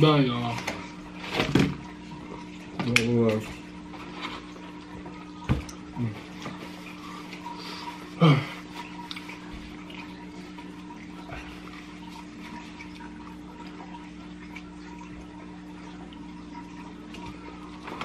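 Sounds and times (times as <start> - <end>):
low electrical hum: 0.0 - 18.0
wet chewing and lip-smacking: 8.8 - 10.1.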